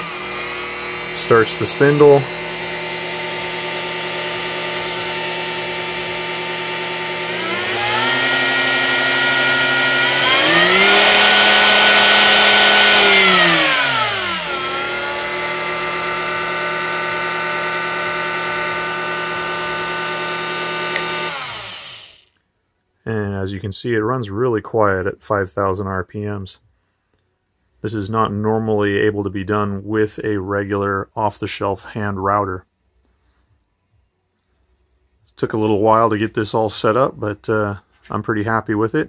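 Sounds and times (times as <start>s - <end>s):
router motor spinning: 0.0s - 22.4s.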